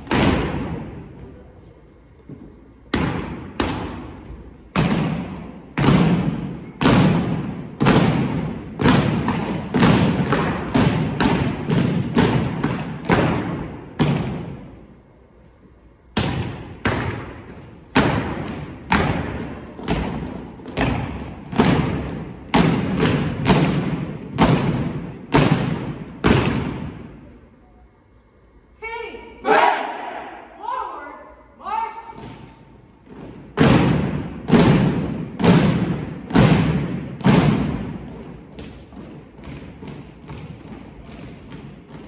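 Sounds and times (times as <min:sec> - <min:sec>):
stomps and slaps in unison: 0:00.0 - 0:01.0, 0:02.9 - 0:14.6, 0:16.2 - 0:27.1, 0:32.1 - 0:42.0.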